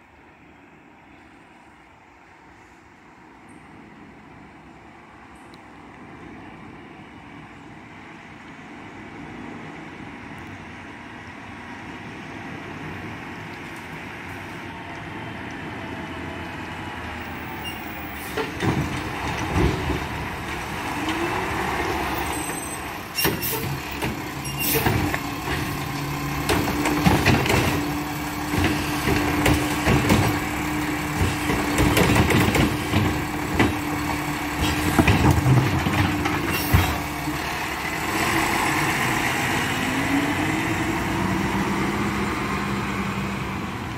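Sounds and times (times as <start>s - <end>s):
garbage truck diesel engine: 0.0s - 43.9s
clanks and knocks: 26.4s - 30.5s, 31.1s - 33.9s.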